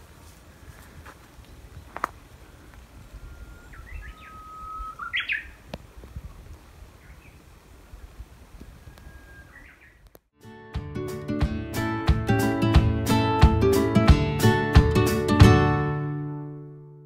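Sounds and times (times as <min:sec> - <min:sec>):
bird singing: 0:01.8 - 0:05.7, 0:08.6 - 0:10.1
acoustic guitar music: 0:10.4 - 0:17.0.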